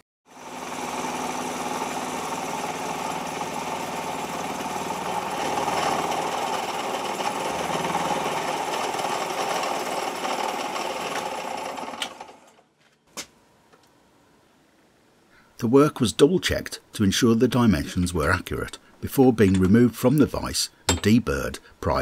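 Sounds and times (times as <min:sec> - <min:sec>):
milling cutter chattering: 0:01.0 - 0:12.3.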